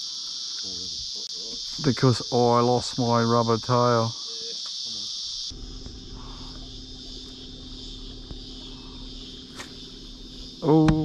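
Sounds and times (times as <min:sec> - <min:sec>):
cicadas droning: 0:00.0 - 0:11.0
low hum and rumble: 0:05.5 - 0:11.0.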